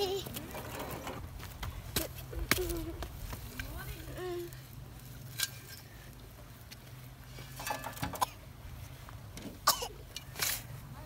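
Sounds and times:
child's voice: 3.7 - 4.6
spade scraping and digging manure: 5.1 - 6.3, 7.3 - 8.4, 9.4 - 10.8
spade knocking metal wheelbarrow: 7.6 - 8.2.

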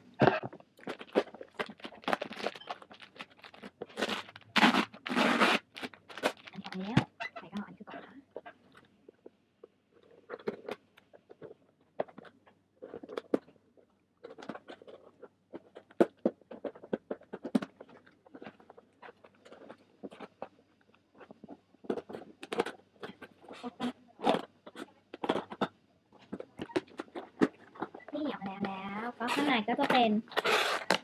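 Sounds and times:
scissors cutting cardboard: 4.0 - 6.4.

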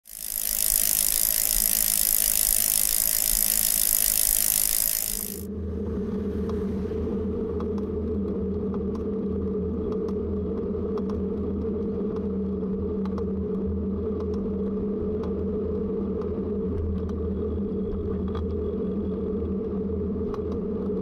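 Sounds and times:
bicycle freewheel ticking: 0.0 - 5.5
moving bike hum: 0.0 - 7.4.

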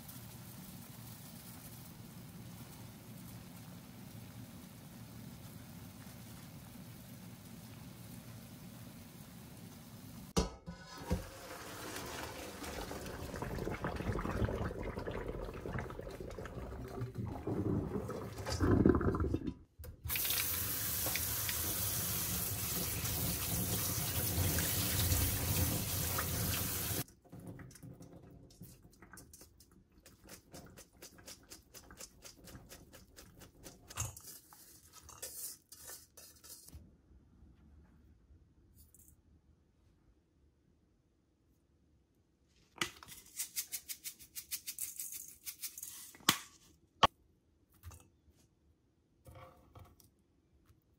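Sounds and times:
water splashing into steel sink: 10.4 - 34.1
kitchen tap running: 10.8 - 34.0.

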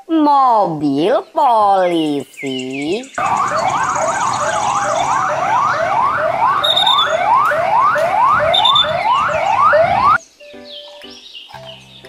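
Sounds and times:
police sirens sweeping: 3.2 - 10.2.

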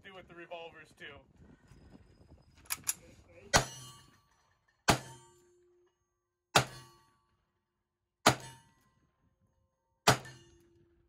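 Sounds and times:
bullet ringing on steel target: 3.5 - 5.8, 6.5 - 7.3, 8.2 - 9.0, 10.0 - 10.8.

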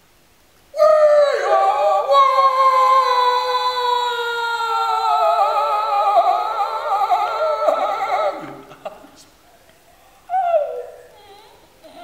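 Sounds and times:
man vocalising sliding downward: 4.4 - 9.3
man vocalising with vibrato: 5.0 - 9.2.

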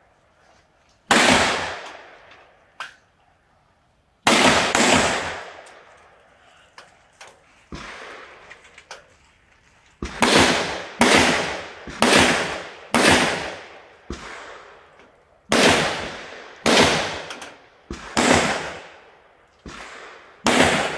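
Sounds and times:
loud gunshots with echo: 1.1 - 2.2, 4.2 - 5.6, 7.8 - 8.4, 10.0 - 14.9, 15.5 - 20.9.

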